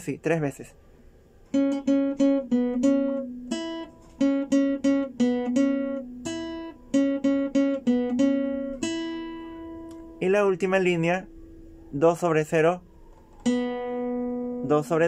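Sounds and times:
classical guitar fingerpicked notes: 1.5 - 10.3, 13.4 - 14.7.

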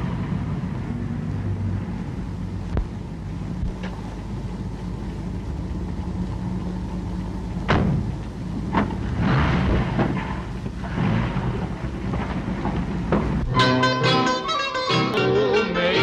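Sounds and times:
car engine idling: 0.0 - 14.0
car doors slamming: 7.7 - 8.1.

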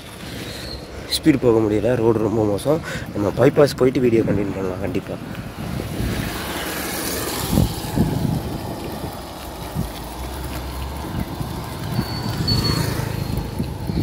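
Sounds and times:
wind buffeting microphone: 0.8 - 14.0
motorbike engines passing: 3.4 - 14.0.

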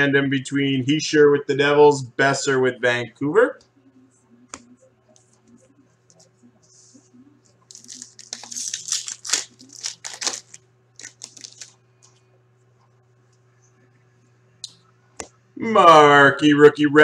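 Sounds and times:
foil wrappers crinkling and tearing: 7.7 - 11.8.

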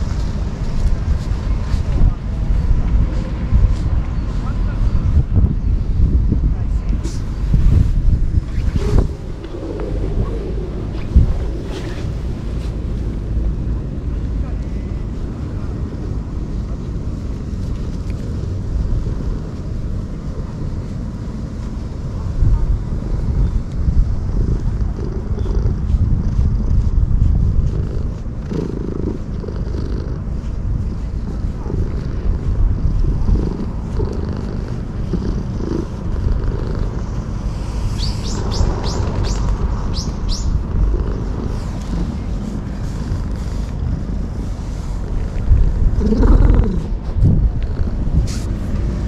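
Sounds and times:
cat purring: 7.6 - 13.2, 23.2 - 39.8, 40.6 - 48.8
bird chirping: 37.9 - 40.6.

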